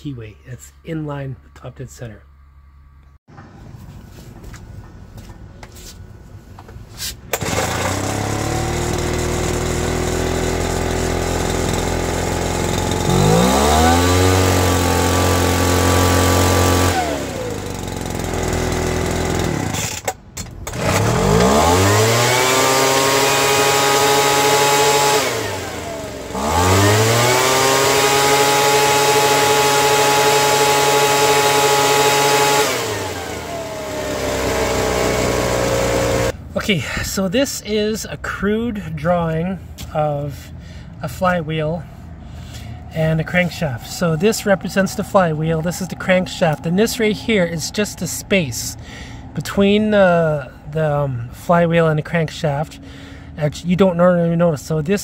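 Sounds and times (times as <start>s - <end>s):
leaf blower engine revving: 7.3s - 36.5s, 42.4s - 49.5s.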